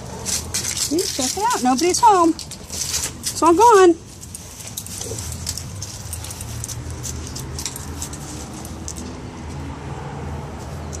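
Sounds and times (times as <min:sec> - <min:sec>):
light clicks and jingles: 0:00.2 - 0:09.7.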